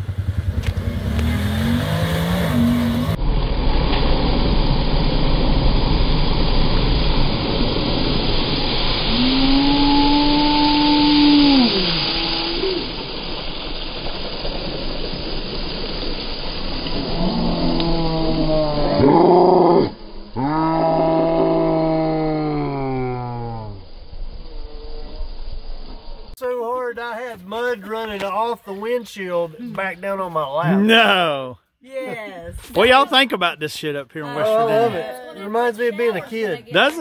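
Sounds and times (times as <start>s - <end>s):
utility vehicle engine running: 0.0s - 9.4s
people whooping: 9.1s - 13.1s, 34.2s - 35.4s.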